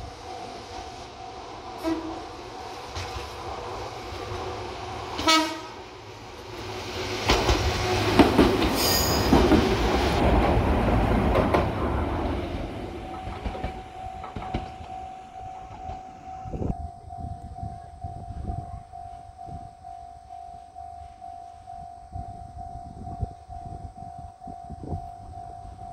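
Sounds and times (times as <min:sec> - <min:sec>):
train rumbling over bridge: 0:00.0 - 0:25.9
train horn blast: 0:01.8 - 0:02.3, 0:05.2 - 0:05.8
wheel squeal: 0:08.8 - 0:09.4
level crossing bell ringing: 0:13.0 - 0:25.9.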